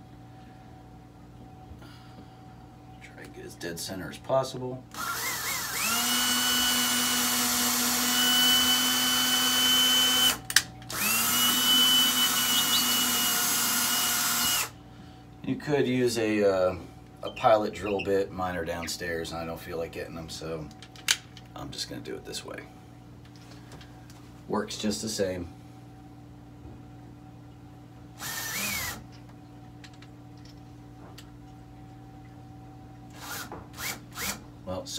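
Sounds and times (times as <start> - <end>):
low electrical hum: 0.0 - 34.9
cordless drill driving screw: 4.9 - 14.7, 28.2 - 29.0
drill click: 4.9 - 14.7, 28.2 - 29.0.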